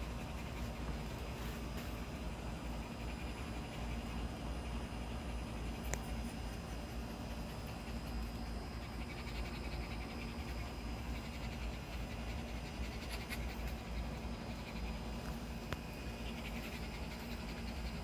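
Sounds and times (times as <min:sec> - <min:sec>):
puppy panting: 0:00.0 - 0:18.0
steady low hum: 0:00.0 - 0:18.0
click: 0:05.9 - 0:06.1.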